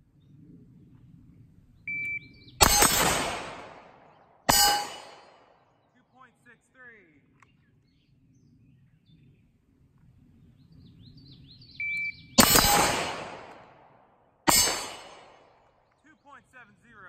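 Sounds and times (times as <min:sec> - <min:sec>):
birds chirping: 0:00.0 - 0:13.4, 0:14.5 - 0:17.0
shot timer beep: 0:01.9 - 0:02.9, 0:11.8 - 0:12.9
pistol shot echoing: 0:02.6 - 0:05.7, 0:12.4 - 0:15.8
rifle gunshot echoing: 0:02.6 - 0:05.7, 0:12.4 - 0:15.8.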